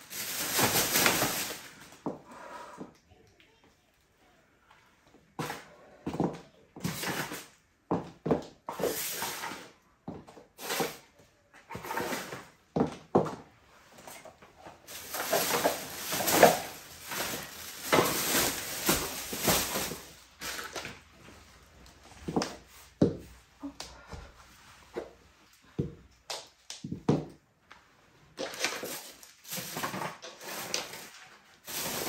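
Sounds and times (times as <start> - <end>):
plastic bag crinkling: 0.0 - 2.0, 14.7 - 21.1, 28.4 - 32.0
items being set down: 14.0 - 21.1.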